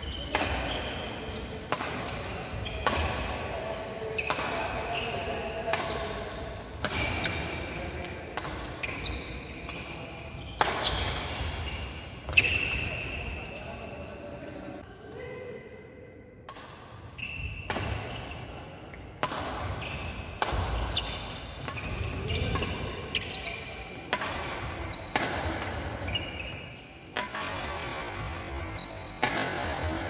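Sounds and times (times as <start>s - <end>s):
shoes squeaking on wooden court: 0.0s - 7.7s, 8.4s - 14.2s, 17.2s - 18.4s, 19.8s - 27.0s, 28.5s - 30.0s
rackets hitting shuttlecock: 0.2s - 1.0s, 1.6s - 3.5s, 8.3s - 9.9s, 10.5s - 11.6s, 16.5s - 18.2s, 18.9s - 30.0s.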